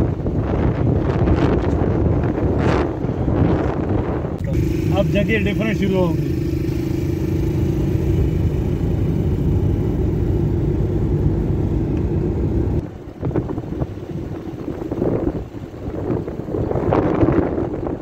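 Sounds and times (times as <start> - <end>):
wind buffeting microphone: 0.0 - 5.3, 6.2 - 18.0
vehicle engine and road noise: 0.0 - 18.0.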